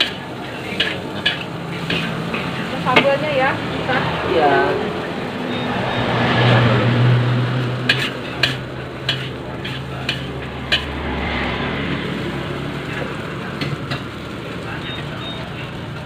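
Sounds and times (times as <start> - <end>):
spatula striking wok: 0.0 - 3.4, 7.7 - 11.2
noodles sizzling in a wok: 0.0 - 11.3, 11.9 - 16.0.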